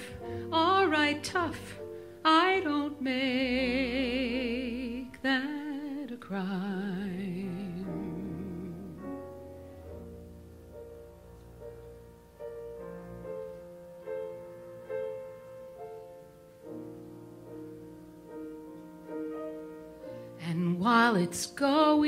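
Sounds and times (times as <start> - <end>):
piano chords: 0.0 - 22.0.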